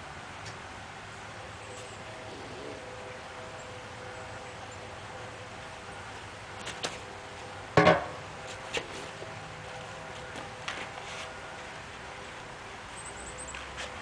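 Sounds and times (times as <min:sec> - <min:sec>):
solid thump: 0:07.8 - 0:08.2.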